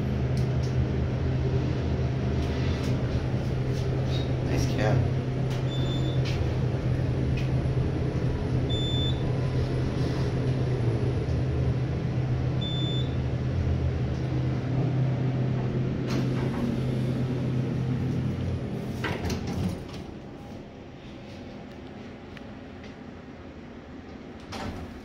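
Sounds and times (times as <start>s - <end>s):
elevator hum: 0.0s - 25.0s
elevator click: 16.0s - 16.8s.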